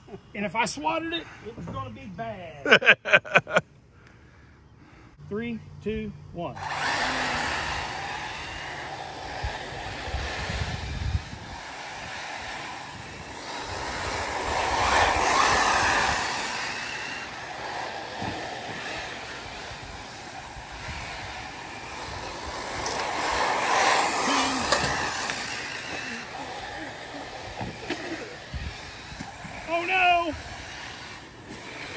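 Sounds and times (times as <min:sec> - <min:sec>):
rc car motor whine: 0:06.6 - 0:31.9.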